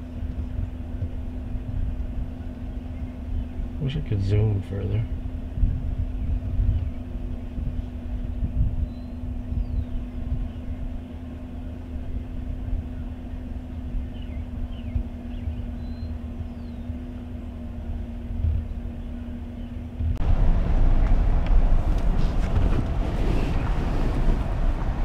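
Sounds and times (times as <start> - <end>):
faint bird chirps: 8.2 - 10.9, 12.8 - 17.2
truck engine idling: 10.8 - 25.0.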